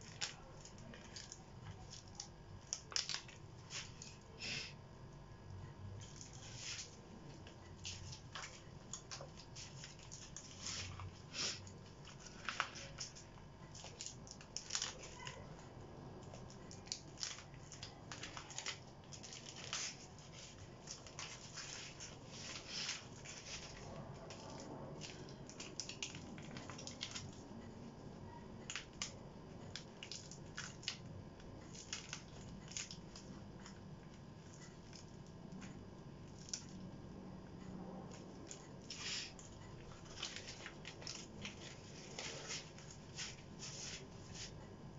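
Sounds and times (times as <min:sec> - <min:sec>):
wrapper crinkling and tearing: 0:00.0 - 0:04.2, 0:06.0 - 0:15.5, 0:16.2 - 0:27.5, 0:28.7 - 0:33.8, 0:38.2 - 0:44.5.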